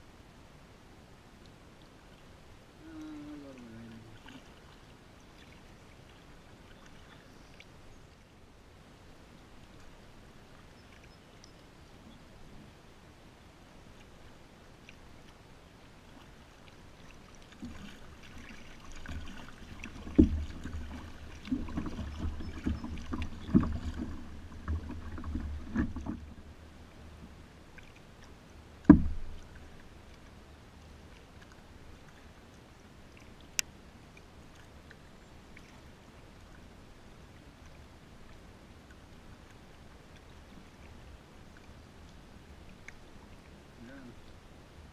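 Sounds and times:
paddle strokes splashing: 2.9s - 8.3s, 13.9s - 30.4s, 33.1s - 36.7s
knocks on kayak hull: 20.1s - 20.7s, 28.8s - 29.4s.

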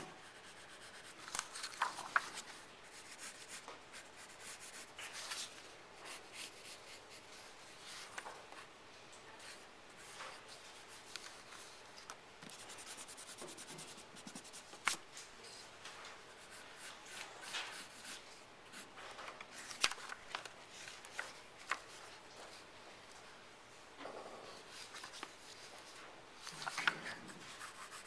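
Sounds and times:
paper rustling: 1.2s - 4.0s, 19.0s - 22.6s, 24.6s - 28.0s
pencil scratching on paper: 12.5s - 14.6s, 16.4s - 18.9s, 27.1s - 28.0s.

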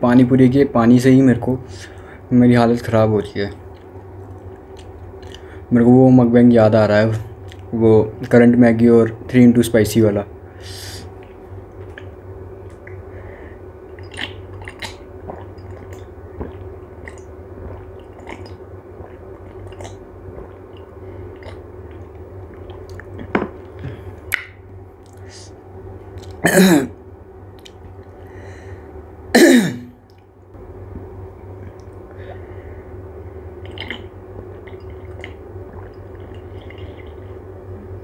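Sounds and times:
steady low hum: 0.0s - 38.0s
chewing and crunching food: 3.5s - 5.6s, 7.4s - 7.7s, 13.9s - 25.3s, 26.0s - 26.4s, 33.6s - 37.4s
throat-clearing coughs: 26.4s - 27.0s, 29.4s - 30.0s.

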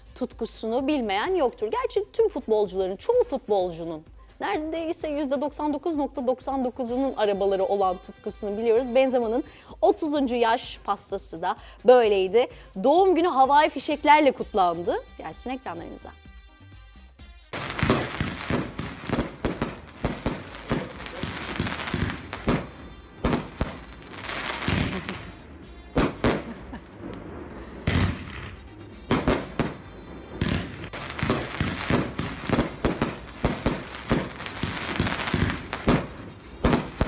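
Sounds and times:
fireworks crackling hiss: 17.5s - 37.0s
fireworks bangs: 17.6s - 37.0s.

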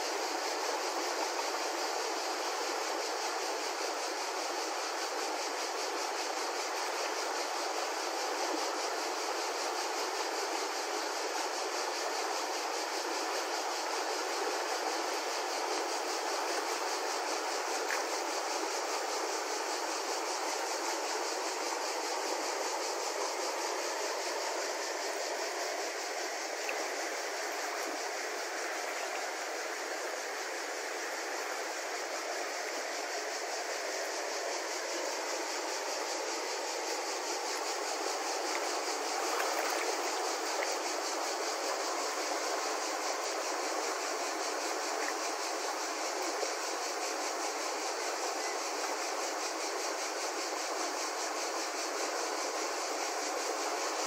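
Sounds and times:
river rushing over rocks: 36.2s - 45.7s.

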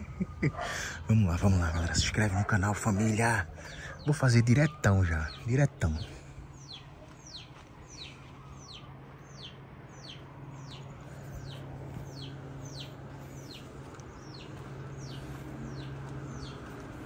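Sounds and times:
bird chirping: 3.0s - 17.0s
steady low hum: 6.0s - 17.0s.

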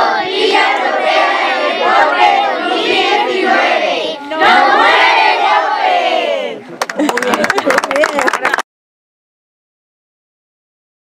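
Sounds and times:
children chanting a cheer: 0.0s - 6.6s.

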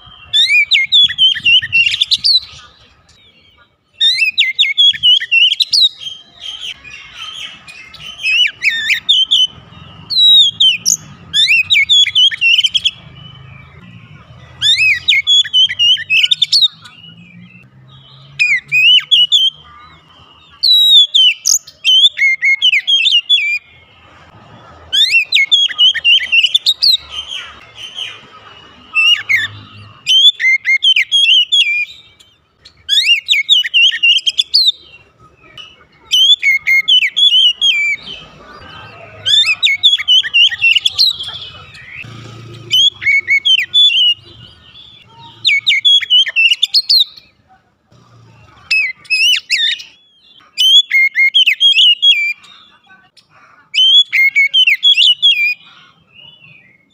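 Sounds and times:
bird singing whistled phrases: 4.0s - 13.9s, 20.5s - 23.7s, 28.8s - 35.0s, 48.7s - 52.4s, 53.8s - 55.6s.

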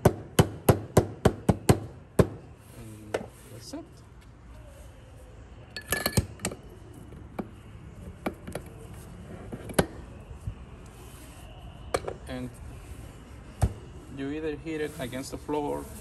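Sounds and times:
metallic clinks and knocks: 5.7s - 6.6s.

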